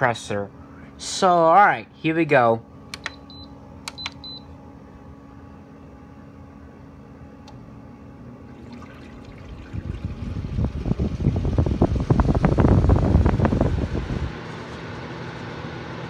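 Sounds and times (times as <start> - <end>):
air conditioner fan humming: 0.0 - 16.0
air conditioner control panel beeps: 2.9 - 4.6
gusty air rushing on microphone: 9.8 - 14.4.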